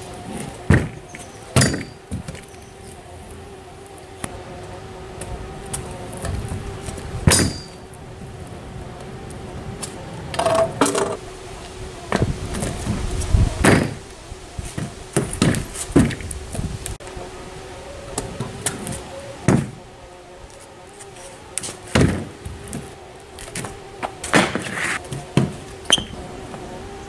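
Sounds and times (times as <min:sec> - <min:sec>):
kick scooter clattering on board: 0:00.3 - 0:02.6, 0:05.7 - 0:07.8, 0:21.6 - 0:26.1.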